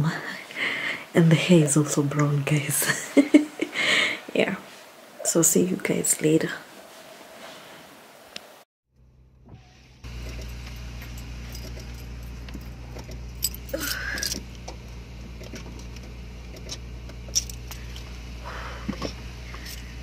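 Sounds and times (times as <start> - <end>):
low hum inside car: 8.9 - 20.0
light clicks and jingles: 10.1 - 18.2, 19.5 - 20.0.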